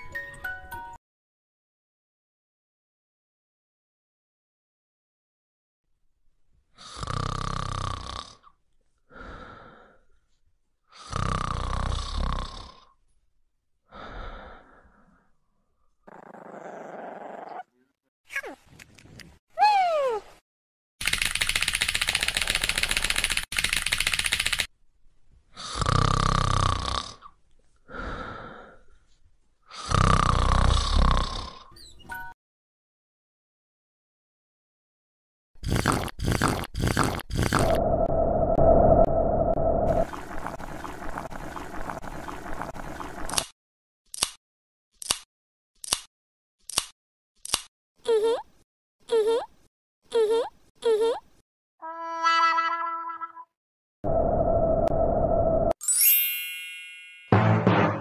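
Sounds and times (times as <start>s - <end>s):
person snoring: 6.8s - 10.0s, 10.9s - 13.0s, 16.1s - 17.7s, 25.5s - 28.8s, 29.7s - 31.7s, 35.6s - 43.2s.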